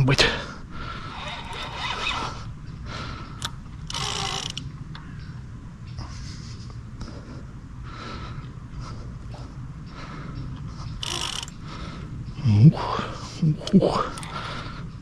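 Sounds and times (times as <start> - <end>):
fishing reel drag and winding: 1.1 - 2.3, 3.9 - 4.6, 11.0 - 11.6.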